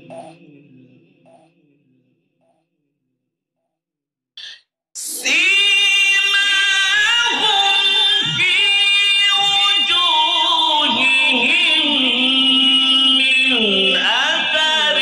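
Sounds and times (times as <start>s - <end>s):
man chanting recitation: 0.0s - 1.5s, 5.0s - 15.0s.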